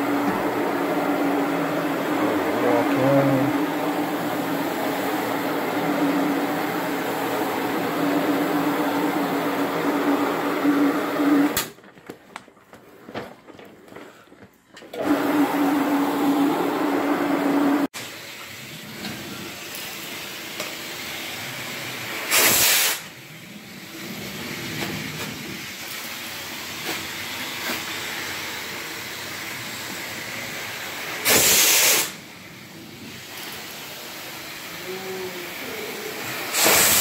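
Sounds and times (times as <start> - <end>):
carpet extraction wand hissing: 19.7 - 23.1, 30.7 - 32.2, 33.0 - 37.0.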